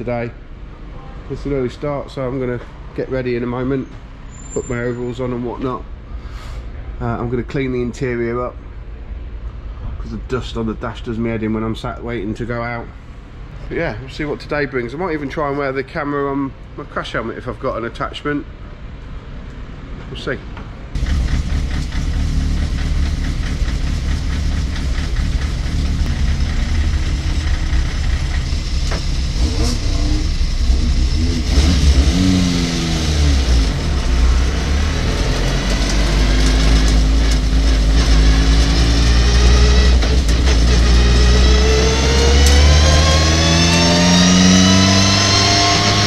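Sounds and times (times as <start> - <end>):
truck engine revving: 21.0 - 46.0.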